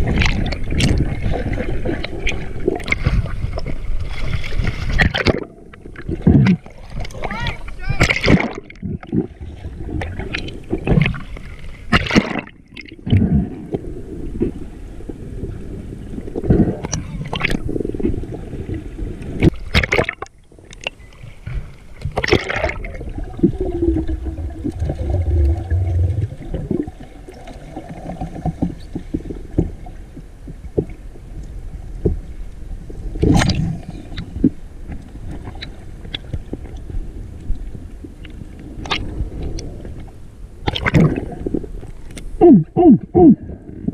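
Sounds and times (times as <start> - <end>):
underwater water rushing: 0.0 - 43.9
low rumble: 22.8 - 27.3.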